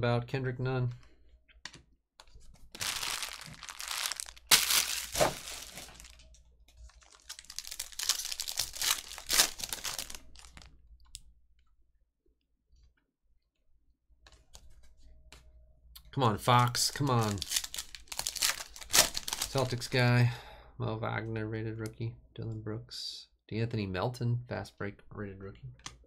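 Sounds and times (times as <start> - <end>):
foil wrapper crinkling: 2.7 - 10.7, 17.0 - 19.9.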